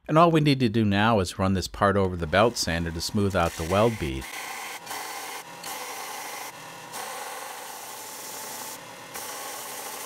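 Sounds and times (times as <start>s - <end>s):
belt sander grinding metal: 2.1s - 10.0s.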